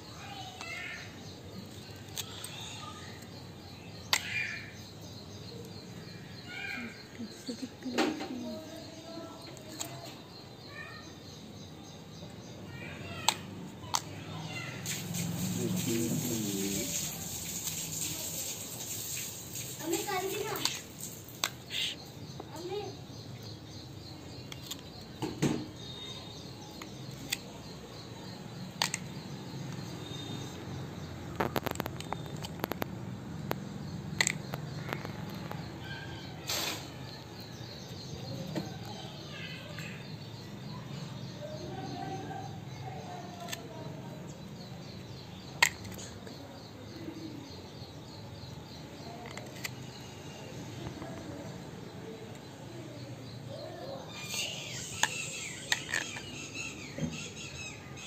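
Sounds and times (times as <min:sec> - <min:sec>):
birds chirping: 0:00.0 - 0:58.0
outdoor hiss: 0:14.3 - 0:23.0, 0:36.4 - 0:37.8.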